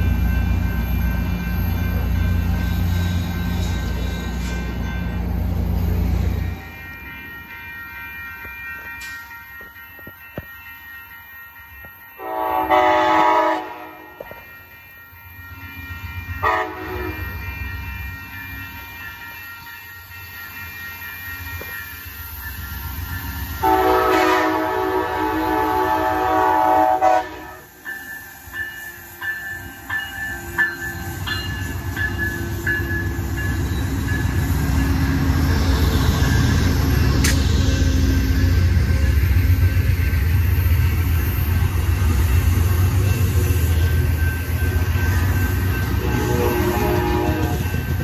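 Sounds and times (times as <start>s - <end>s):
crossing bell dinging: 0.0s - 48.0s
rail cars rumbling and clattering: 0.0s - 48.0s
train horn blast: 12.2s - 14.4s, 16.4s - 17.4s, 23.6s - 27.7s, 46.0s - 47.8s.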